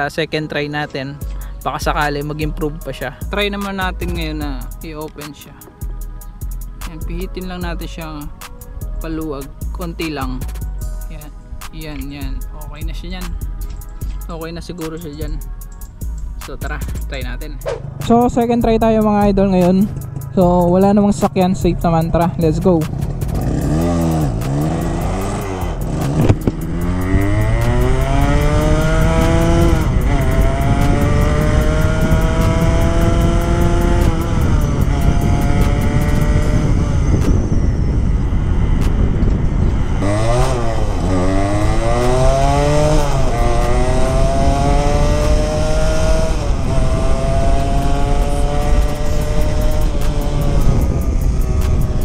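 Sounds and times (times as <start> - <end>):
motorcycle engine accelerating: 17.2 - 52.0.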